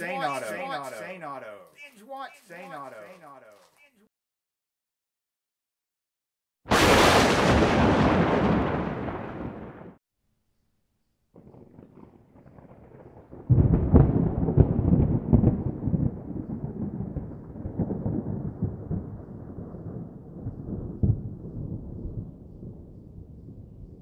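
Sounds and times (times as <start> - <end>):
fireworks bangs and crackles: 11.4 - 16.8
rolling rumble of fireworks: 11.4 - 17.1.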